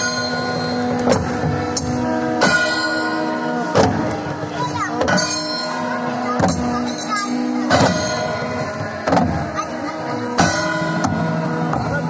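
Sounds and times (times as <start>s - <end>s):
heavy drum strokes: 0.0s - 12.0s
sustained tones: 0.0s - 12.0s
voices chanting: 0.0s - 12.0s.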